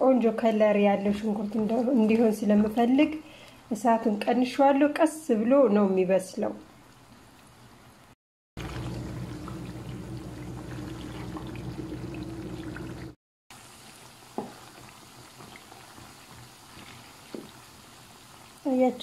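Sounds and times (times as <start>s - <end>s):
onions frying in oil: 8.6s - 19.0s.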